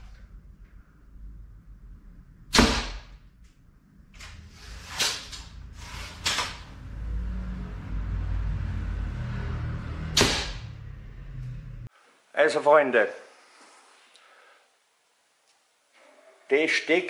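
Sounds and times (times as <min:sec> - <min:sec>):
sharp loud crack: 0:02.5 - 0:03.2, 0:10.1 - 0:10.8.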